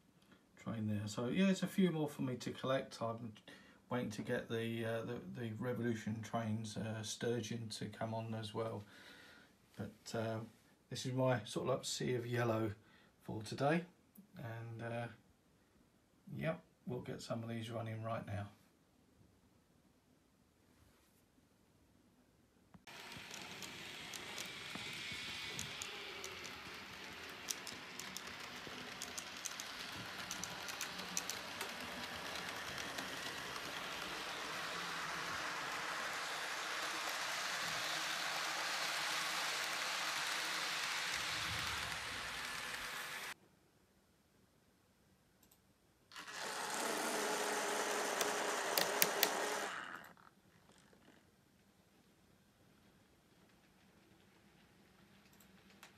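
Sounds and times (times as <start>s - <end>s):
model train running: 22.9s - 43.4s, 46.1s - 50.0s
wheels clicking over rail joints: 22.9s - 43.4s.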